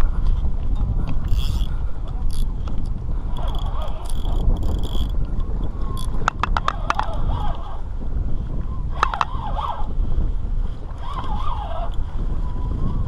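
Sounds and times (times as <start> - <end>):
fishing reel clicks: 0.8 - 7.8, 8.9 - 9.9, 10.9 - 12.0
fishing reel drag whining: 0.8 - 7.9, 8.8 - 10.0, 10.8 - 13.0.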